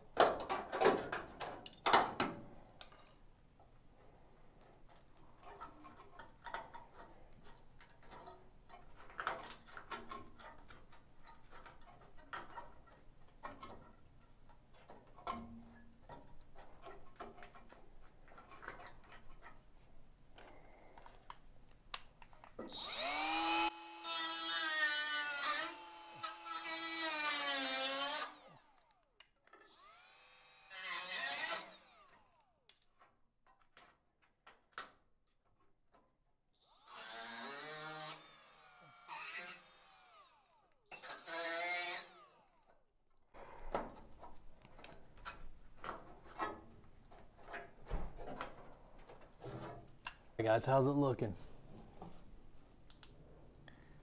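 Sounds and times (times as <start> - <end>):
crackles and scrapes of rusted steel: 4.4 - 20.1, 32.7 - 36.1, 43.3 - 50.3
rotary tool cutting metal: 22.7 - 32.6, 36.6 - 42.7.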